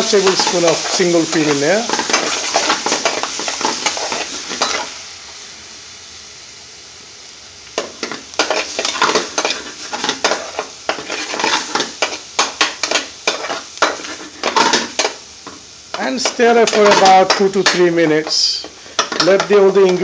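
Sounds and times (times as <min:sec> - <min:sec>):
sauce sizzling in a frying pan: 0:00.0 - 0:20.0
utensil scraping a pan: 0:07.8 - 0:20.0.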